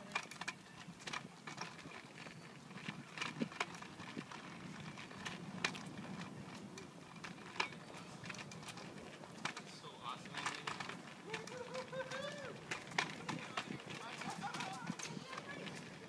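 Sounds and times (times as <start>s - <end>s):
footsteps on concrete: 0.0s - 16.0s.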